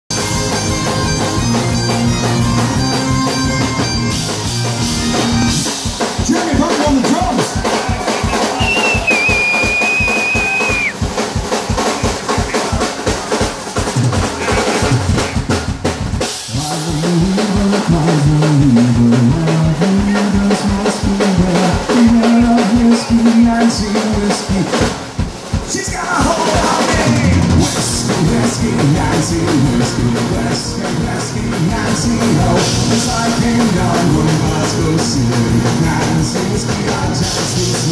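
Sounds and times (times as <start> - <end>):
electric guitar: 0.1 - 6.3, 26.2 - 37.9
rock drum beat: 0.1 - 37.9
bagpipes playing: 0.2 - 5.1.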